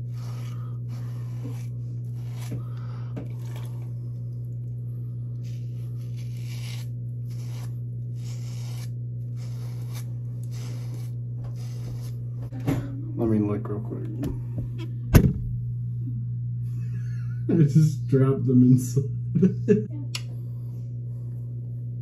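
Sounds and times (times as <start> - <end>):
razor scraping stubble: 0.0 - 4.6, 5.2 - 12.5
steady low hum: 0.0 - 22.0.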